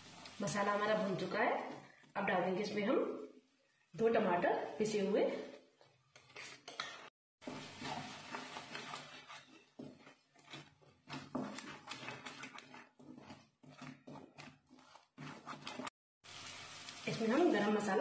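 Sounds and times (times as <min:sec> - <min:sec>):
wooden spatula stirring in pan: 0:00.0 - 0:18.0
scrapes and knocks against pan: 0:05.8 - 0:15.9.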